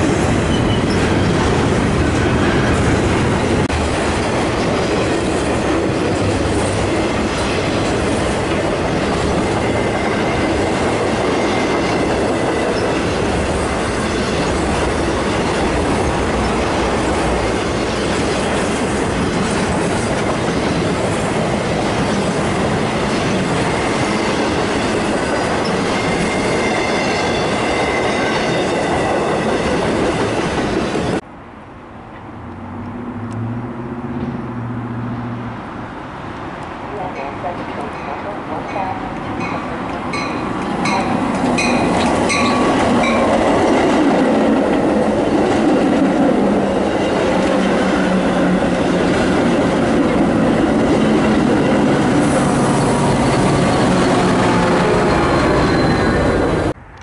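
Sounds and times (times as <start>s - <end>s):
train wheels on rails: 0.0s - 31.2s, 36.3s - 57.0s
high-pitched wheel squeal: 53.8s - 56.7s.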